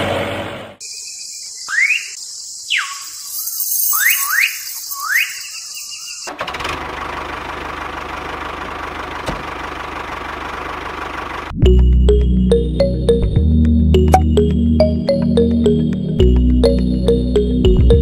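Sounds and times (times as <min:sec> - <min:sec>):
engine rumble with hiss: 0:00.0 - 0:00.8, 0:06.3 - 0:11.5
tractor engine cranking and revving: 0:06.3 - 0:11.6.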